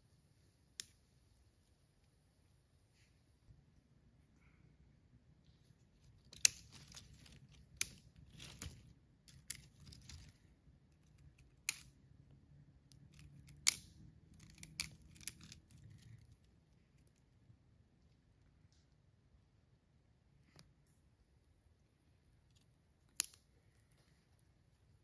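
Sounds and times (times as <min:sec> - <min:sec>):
kindling rustling: 0:05.6 - 0:11.9
twigs snapping: 0:06.0 - 0:10.4, 0:11.0 - 0:12.0, 0:12.9 - 0:16.3, 0:23.1 - 0:23.4.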